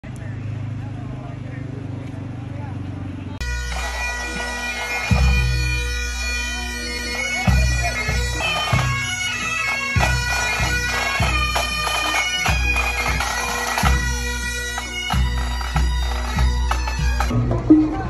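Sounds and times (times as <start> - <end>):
bagpipes playing a march: 3.4 - 17.3
low thumps: 17.3 - 18.0.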